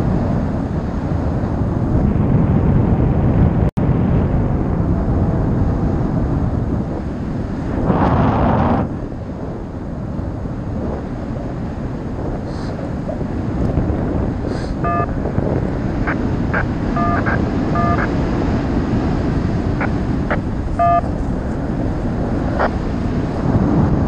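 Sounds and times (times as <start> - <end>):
wind rushing over microphone: 0.0 - 24.0
short electronic beeps: 14.8 - 15.2, 16.1 - 18.2, 20.3 - 21.1.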